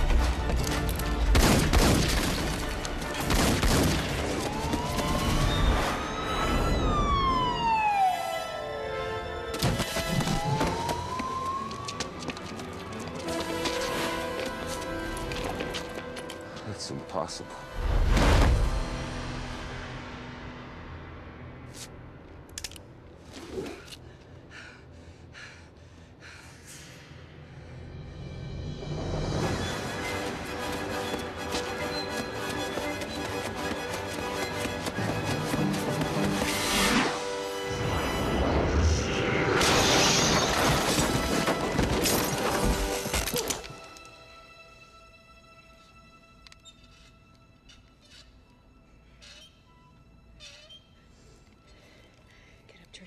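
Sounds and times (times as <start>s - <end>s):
tense orchestral score: 0.0s - 53.0s
woman breathing hard: 23.9s - 27.9s.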